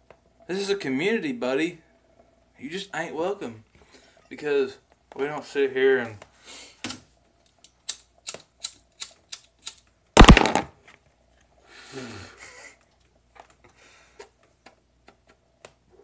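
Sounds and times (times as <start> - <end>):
sharp clicks: 9.6 - 10.6.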